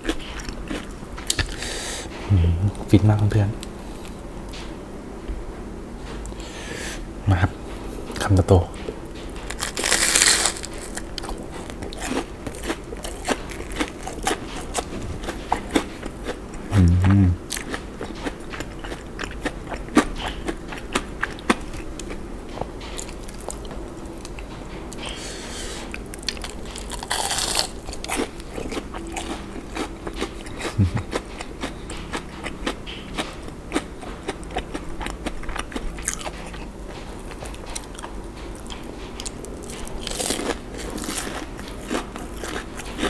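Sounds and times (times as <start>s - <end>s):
crunching and chewing food: 0.0s - 4.7s, 8.1s - 43.0s
short low hum: 2.2s - 4.1s, 16.7s - 17.4s.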